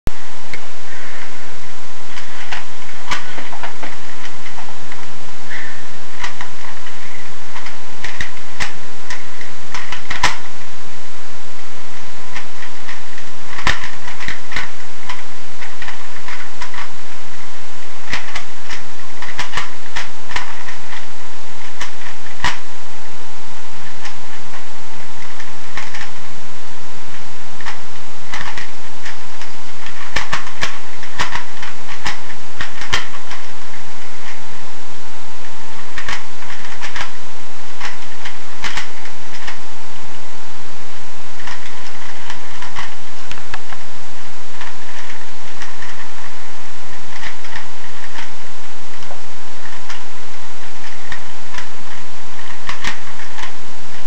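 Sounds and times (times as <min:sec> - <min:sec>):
puzzle cube clicking: 0:02.1 - 0:10.7, 0:12.3 - 0:17.4, 0:18.0 - 0:22.7, 0:27.1 - 0:34.5, 0:35.4 - 0:37.2, 0:37.8 - 0:39.7, 0:41.4 - 0:50.1, 0:50.7 - 0:54.0.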